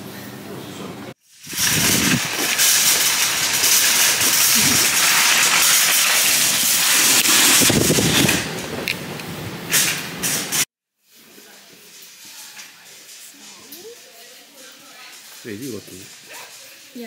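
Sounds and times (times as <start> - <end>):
rain hissing: 1.1 - 17.0
wind buffeting microphone: 1.5 - 2.6, 6.8 - 9.7.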